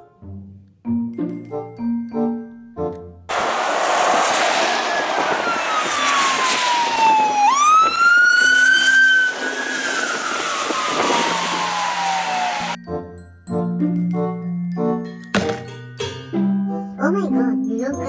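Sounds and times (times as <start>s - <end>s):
tyres hissing on wet road: 3.3s - 7.4s, 8.4s - 12.8s
emergency vehicle siren wailing: 3.3s - 12.8s.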